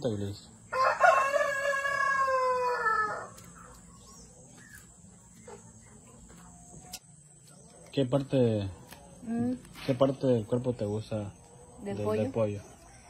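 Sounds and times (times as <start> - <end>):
rooster crowing: 0.7 - 3.4.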